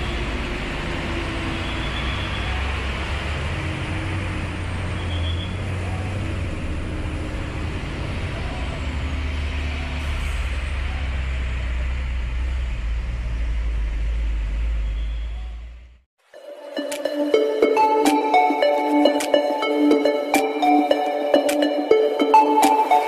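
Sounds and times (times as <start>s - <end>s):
diesel truck engine rumbling: 0.0s - 16.1s.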